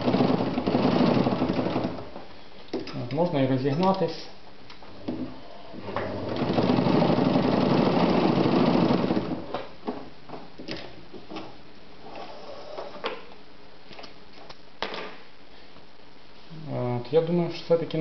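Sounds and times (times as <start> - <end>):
sewing machine running: 0.0 - 2.1, 6.1 - 9.4.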